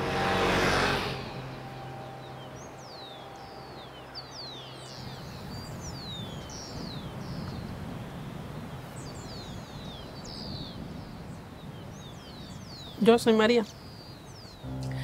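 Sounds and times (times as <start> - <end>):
low rumble: 0.0 - 6.1, 14.6 - 15.0
birds chirping: 0.0 - 15.0
steady low hum: 14.6 - 15.0.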